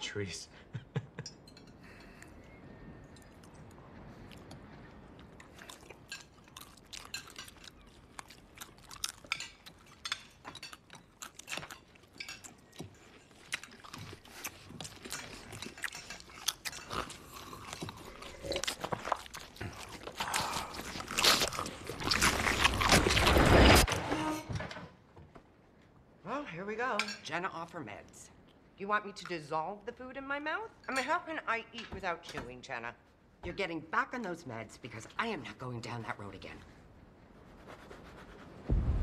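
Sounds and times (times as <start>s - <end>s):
chewing and mouth noises: 1.8s - 23.6s.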